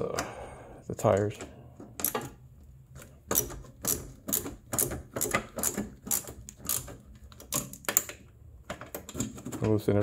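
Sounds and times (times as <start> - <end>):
ratcheting wrench clicking: 3.3 - 8.1.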